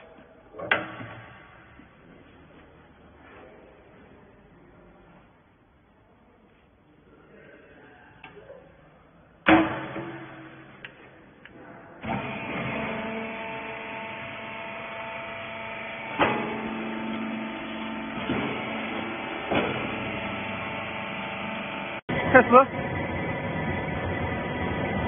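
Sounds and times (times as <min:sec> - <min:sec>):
loud clank: 0:09.5 - 0:10.8
hydraulic pump motor humming: 0:12.0 - 0:25.0.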